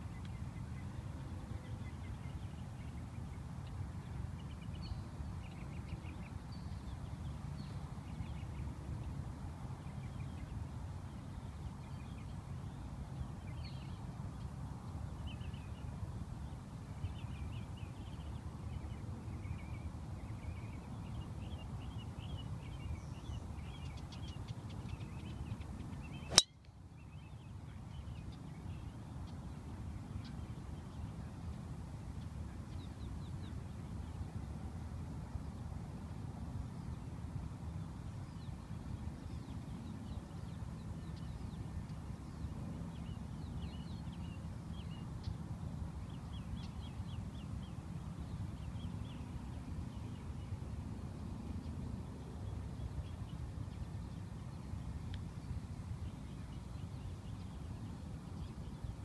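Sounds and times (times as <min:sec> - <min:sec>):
golf driver striking ball: 0:26.3 - 0:26.5.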